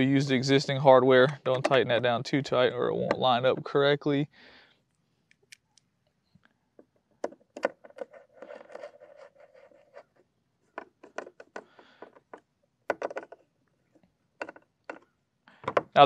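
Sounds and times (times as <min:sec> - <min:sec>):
screw scraping in plastic: 0:06.8 - 0:15.1.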